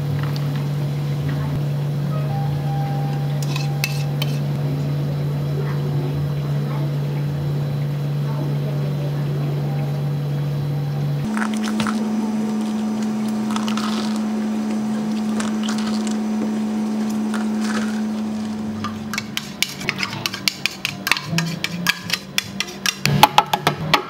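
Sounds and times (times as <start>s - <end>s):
low electric hum: 0.0s - 24.0s
dishes and utensils clinking: 3.4s - 4.5s, 18.8s - 23.6s.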